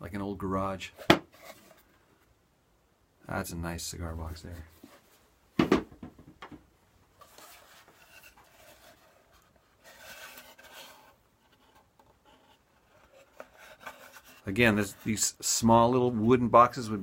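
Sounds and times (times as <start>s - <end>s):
wooden box rubbing and scraping: 7.2s - 16.3s.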